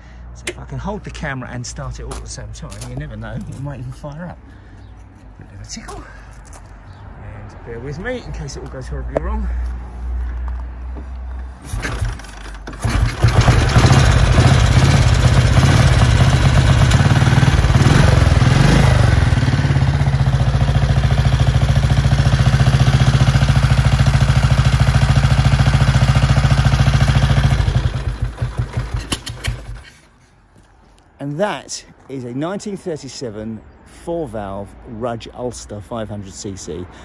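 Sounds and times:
motorcycle engine starting and revving: 0:11.6 - 0:30.1
engine idling: 0:11.7 - 0:29.9
engine running down to a stop: 0:11.7 - 0:29.9.

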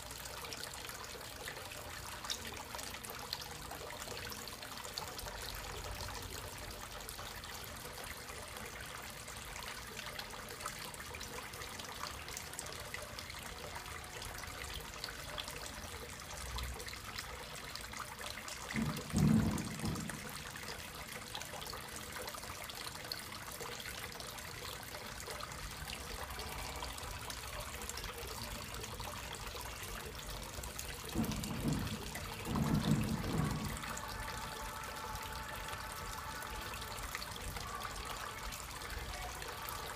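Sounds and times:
water trickling into pond tub: 0:00.0 - 0:39.9
low muffled bumps: 0:31.1 - 0:34.1.

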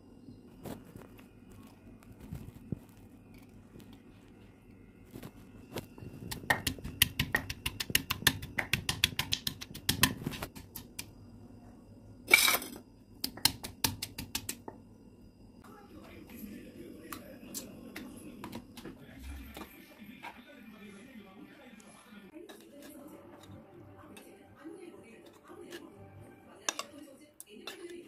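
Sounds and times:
pestle pounding in stone mortar: 0:06.3 - 0:11.0, 0:13.2 - 0:14.6.

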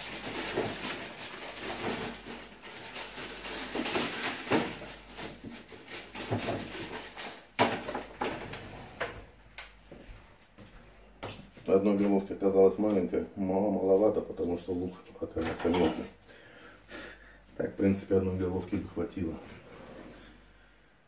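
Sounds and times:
onion rustling when handled: 0:00.0 - 0:07.6.

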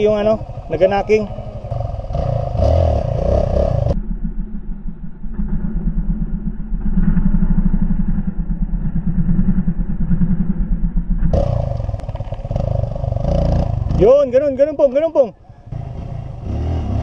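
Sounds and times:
dirt bike engine revving: 0:00.0 - 0:04.0, 0:11.3 - 0:15.0, 0:15.6 - 0:17.0.

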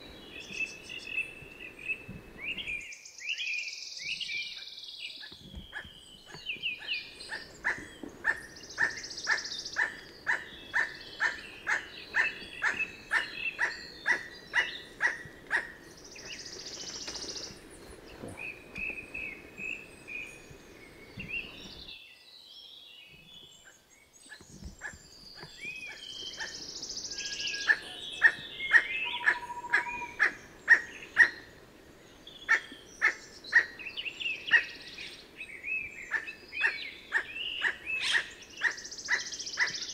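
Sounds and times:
other birds chirping: 0:04.0 - 0:22.0, 0:23.0 - 0:39.9
toucanet calling: 0:05.7 - 0:15.8, 0:27.3 - 0:31.4.

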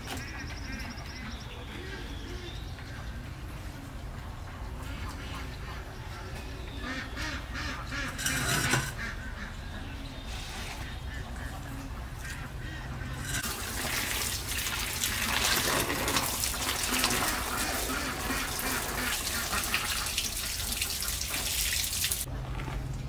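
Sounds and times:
water spattering on tiled floor: 0:13.2 - 0:22.3
water running from a tap: 0:13.4 - 0:22.3.

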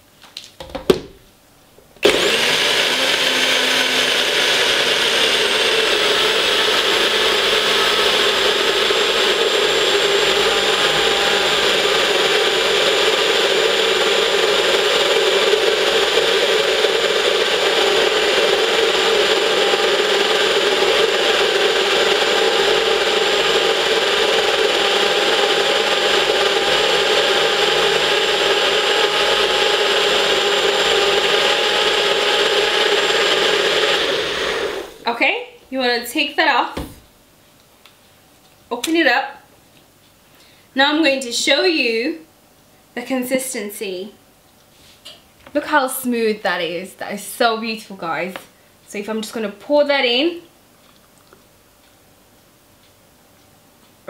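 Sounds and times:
blender motor blending ice: 0:02.0 - 0:35.0.

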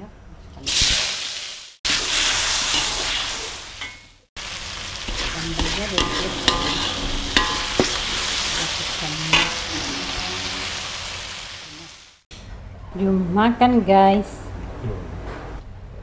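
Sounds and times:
paste sizzling in hot oil: 0:00.8 - 0:12.2
metal spoon scraping wok: 0:02.0 - 0:04.0, 0:04.7 - 0:11.7.

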